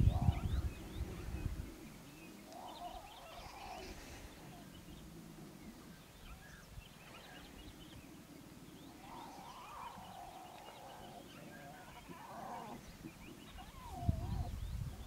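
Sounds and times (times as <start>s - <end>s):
faint bird chirps: 0.0s - 15.0s
lion cub whining growl: 8.8s - 14.5s.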